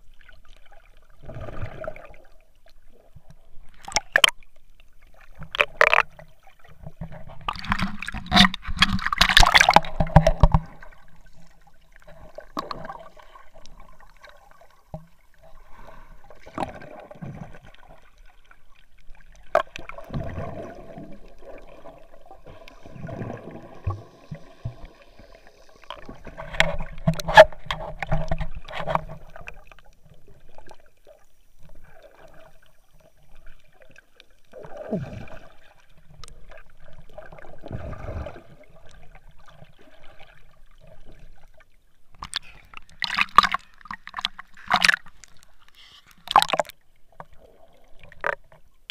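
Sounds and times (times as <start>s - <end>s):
underwater gurgling and bubbling: 0.0s - 4.4s, 5.0s - 41.5s
water sloshing and knocks: 6.8s - 10.9s, 26.2s - 29.5s, 42.2s - 45.5s, 46.2s - 47.3s.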